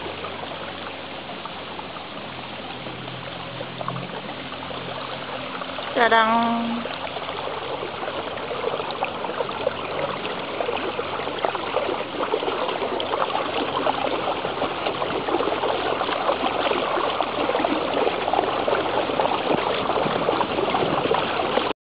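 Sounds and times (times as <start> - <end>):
water churning and splashing: 0.0 - 21.7.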